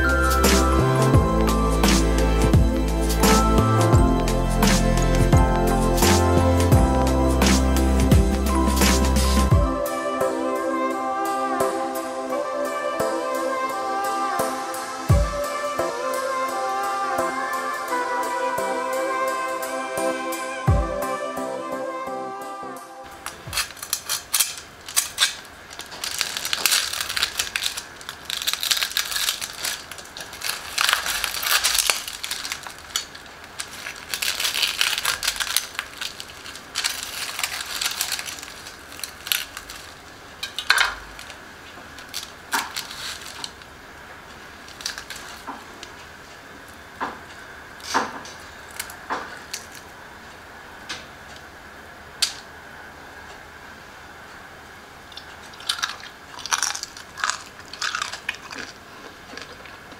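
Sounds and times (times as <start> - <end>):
crispy pork skin crunching: 23.1 - 41.4, 42.0 - 43.7, 44.6 - 45.9, 47.8 - 49.9, 55.2 - 59.9.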